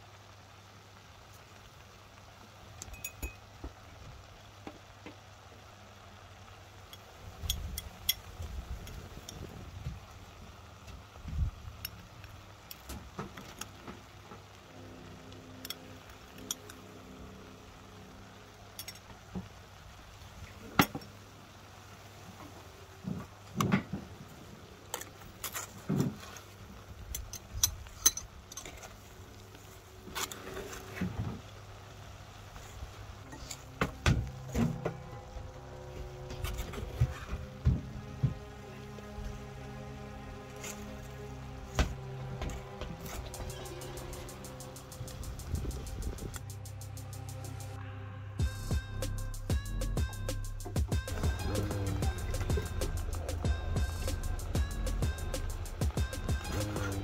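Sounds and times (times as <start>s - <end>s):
metal spoon clinking on dish: 2.9s - 3.4s
low background rumble: 26.6s - 57.0s.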